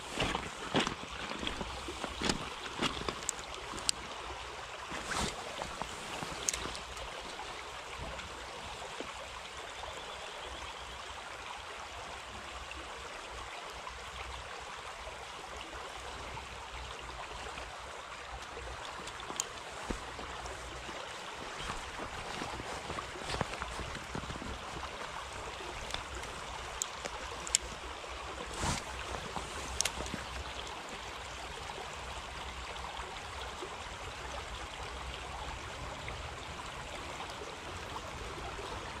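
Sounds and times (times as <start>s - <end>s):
footsteps on gravel: 0.0s - 3.9s, 19.7s - 25.0s, 28.5s - 30.3s
stream flowing over gravel: 0.0s - 39.0s.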